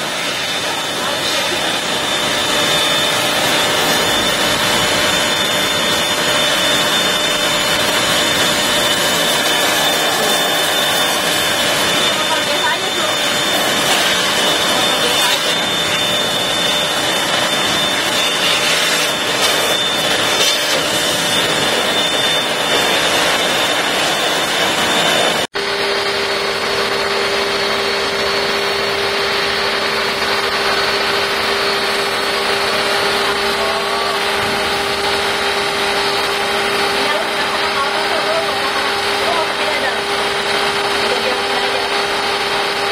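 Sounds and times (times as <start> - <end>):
pressure washer jet hissing: 0.0 - 25.4
steady hum: 0.0 - 42.9
foam lance spraying: 7.7 - 21.6.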